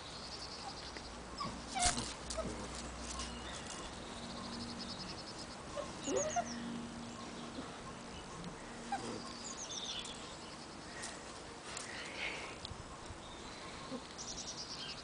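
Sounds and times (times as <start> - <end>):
small birds chirping: 0.0 - 15.0
puppy whining: 1.4 - 3.8, 5.8 - 6.6, 8.8 - 9.4.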